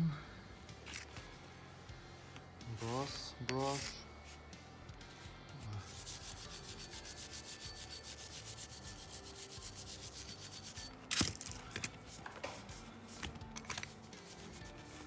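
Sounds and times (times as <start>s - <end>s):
wire brush scrubbing steel: 5.7s - 11.0s.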